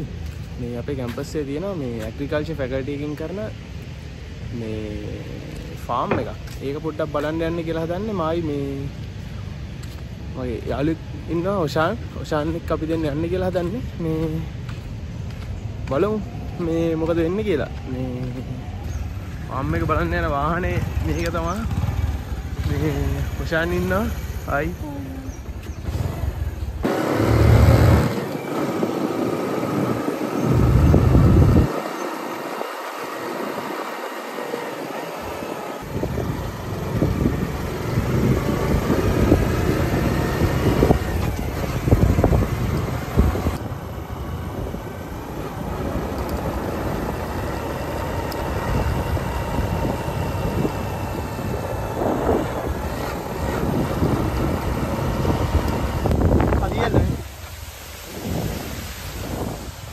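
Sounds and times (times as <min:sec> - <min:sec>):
rush of noise: 0:00.0 - 0:59.9
wind buffeting microphone: 0:00.0 - 0:59.9
motorcycle engine running: 0:18.3 - 0:57.3.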